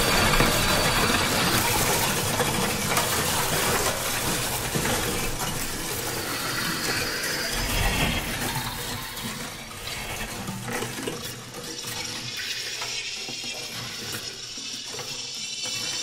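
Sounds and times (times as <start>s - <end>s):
dense rushing noise: 6.4s - 10.6s.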